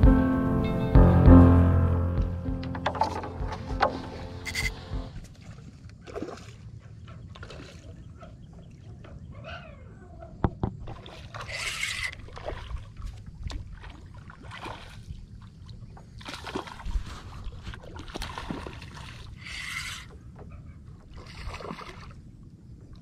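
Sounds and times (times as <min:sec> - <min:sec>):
water sloshing and splashing: 0:02.7 - 0:09.4, 0:10.4 - 0:23.0
fishing reel whirring: 0:04.4 - 0:04.8, 0:11.5 - 0:12.2, 0:19.4 - 0:20.1.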